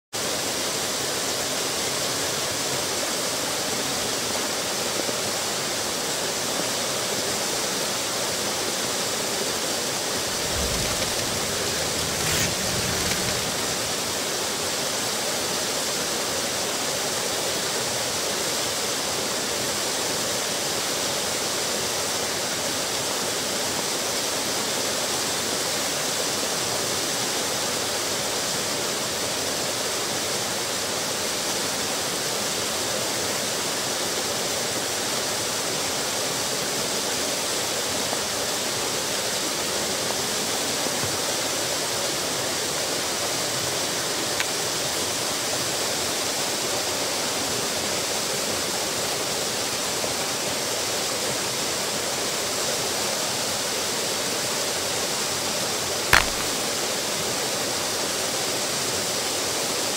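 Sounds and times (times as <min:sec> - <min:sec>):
waterfall splashing into pool: 0:56.2 - 0:56.9.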